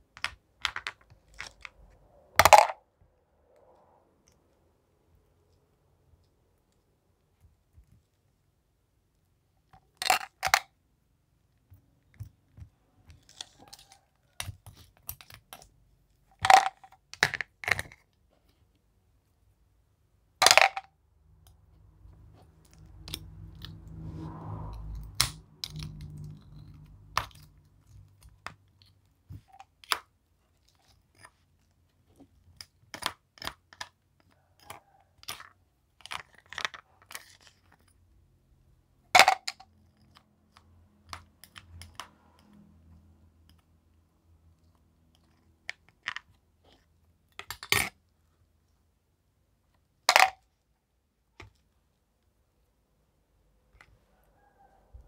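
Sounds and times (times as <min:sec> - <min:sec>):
candies clacking on plastic: 0:00.1 - 0:02.8, 0:09.8 - 0:10.8, 0:16.3 - 0:18.2, 0:20.4 - 0:20.9.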